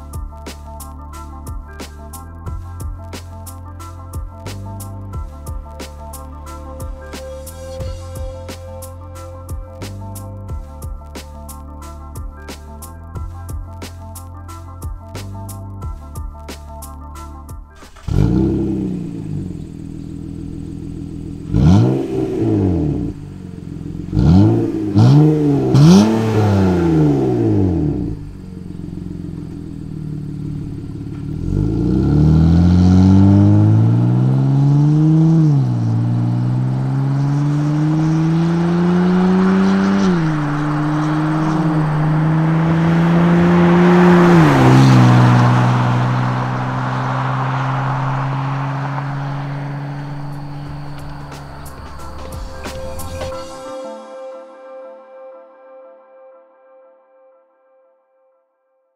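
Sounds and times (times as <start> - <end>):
car engine revving and accelerating: 17.8 - 53.6.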